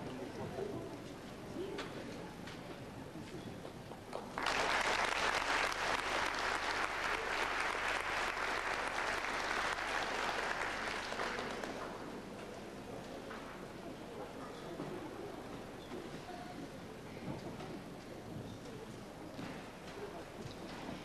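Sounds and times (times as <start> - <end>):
audience applauding: 4.2 - 12.0.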